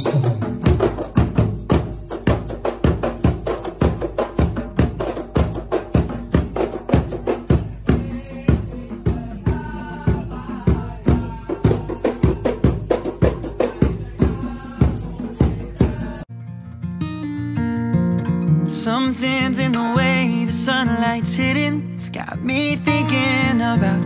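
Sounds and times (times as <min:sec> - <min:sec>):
acoustic guitar song: 0:00.0 - 0:09.6, 0:11.2 - 0:24.0
fast drum music: 0:00.0 - 0:16.2.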